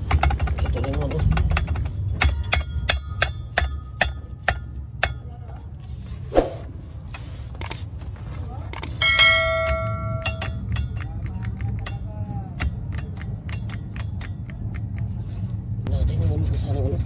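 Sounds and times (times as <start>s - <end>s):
sharp metallic clinks: 8.9s - 11.1s
notification bell ding: 9.0s - 10.5s.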